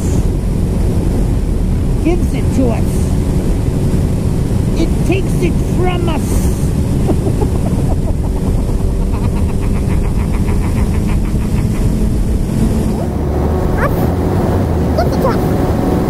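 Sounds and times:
motorcycle engine cruising: 0:00.0 - 0:16.0
wind and road rush: 0:00.0 - 0:16.0.

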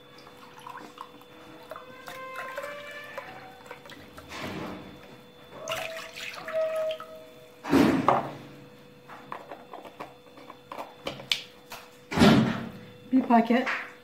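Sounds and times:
milk pouring into glass: 0:00.0 - 0:04.2.

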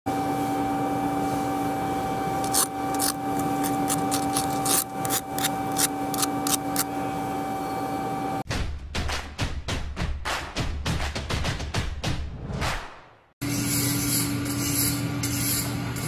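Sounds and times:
wire brush scraping metal: 0:02.4 - 0:06.9.

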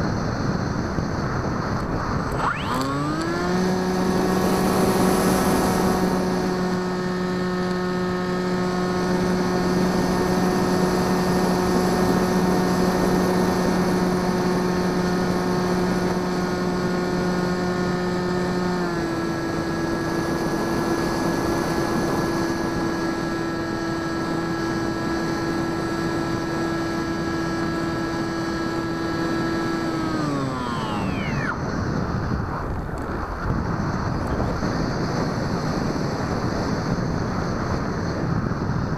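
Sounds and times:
electric motor and propeller whining: 0:00.0 - 0:38.9
rushing wind: 0:00.0 - 0:38.9.

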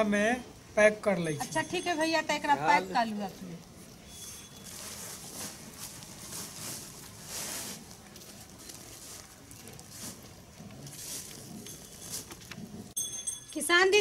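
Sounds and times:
dry feed rustling: 0:04.2 - 0:12.6
plastic feed sack rustling: 0:04.6 - 0:12.4.

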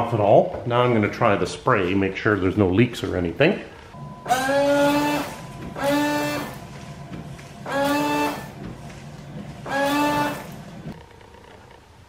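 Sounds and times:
windshield washer pump whine: 0:04.0 - 0:11.1.

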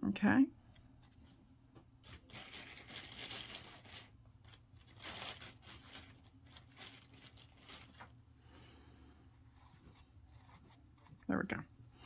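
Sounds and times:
stuffing rustling: 0:02.0 - 0:08.1.

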